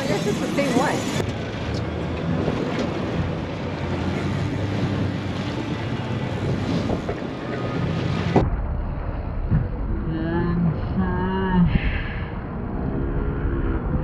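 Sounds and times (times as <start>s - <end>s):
sea rushing past hull: 0.0s - 9.4s
boat engine running: 0.0s - 10.9s
wind noise on microphone: 1.2s - 14.0s.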